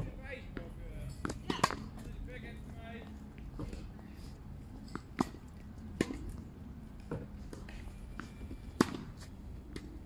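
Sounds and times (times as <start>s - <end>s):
tennis ball bouncing: 0.5s - 2.1s, 4.9s - 10.0s
racket striking tennis ball: 1.2s - 2.0s, 4.9s - 6.4s, 8.2s - 10.0s.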